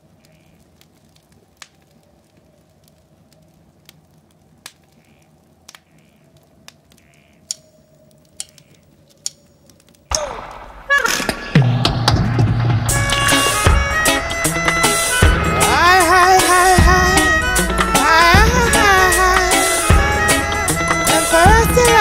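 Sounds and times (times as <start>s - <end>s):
fire crackling and popping: 0.0s - 22.0s
loud song music: 10.1s - 22.0s.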